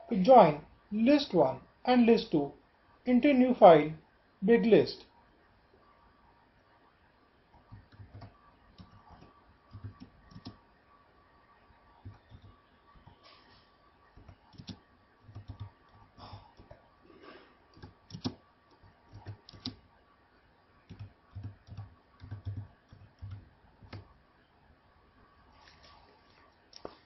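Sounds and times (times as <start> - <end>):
keyboard key clicks: 17.8 - 18.4, 19.1 - 19.8.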